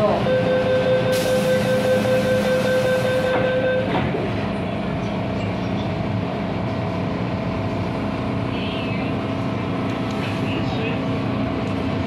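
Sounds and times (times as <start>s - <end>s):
train running rumble: 0.0s - 12.0s
door-closing warning tone: 0.2s - 4.1s.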